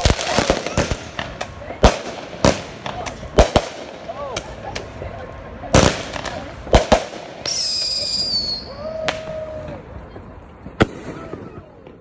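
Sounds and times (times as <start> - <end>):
fireworks sharp bangs: 0.0 - 5.0, 5.6 - 12.0
firework high whistle: 7.4 - 9.7.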